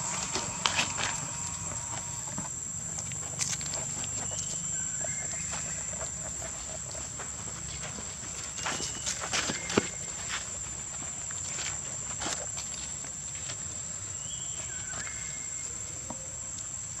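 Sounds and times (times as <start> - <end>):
high-pitched insect drone: 0.0 - 3.6.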